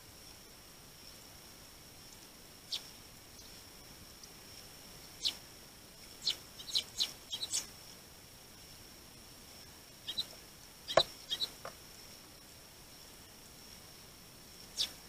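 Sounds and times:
sparrows chirping: 2.6 - 3.6, 4.9 - 5.4, 6.0 - 7.8, 10.0 - 11.7, 14.6 - 15.0.

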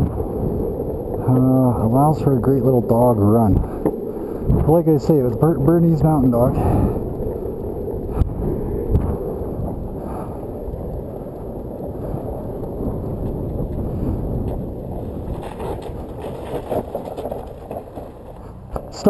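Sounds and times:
skateboard wheels rumbling on asphalt: 0.0 - 19.0
wind buffeting microphone: 0.0 - 19.0.

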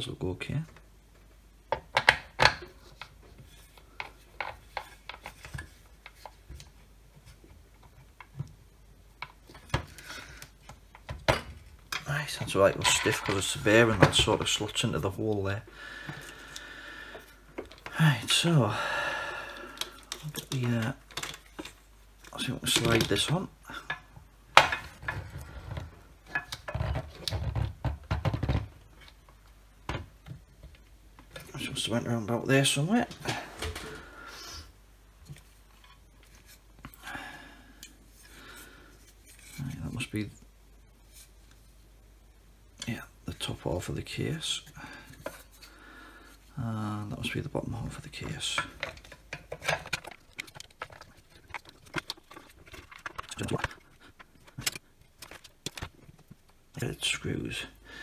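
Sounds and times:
plastic parts clicking and knocking: 1.7 - 8.6, 9.2 - 14.6, 19.6 - 31.6, 47.8 - 56.6
plastic and metal parts clicking: 48.2 - 56.4.

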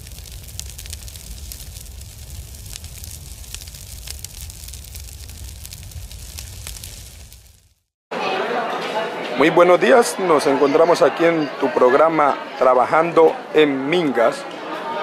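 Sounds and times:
fire crackling: 0.0 - 8.0.

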